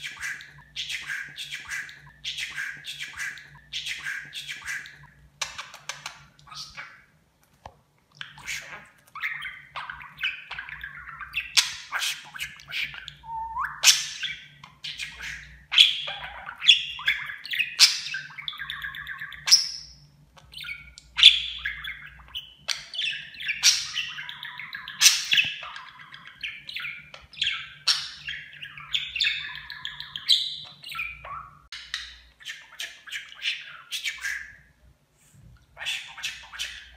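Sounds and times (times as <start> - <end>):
budgerigar warbling: 8.2 - 19.8, 35.8 - 36.9.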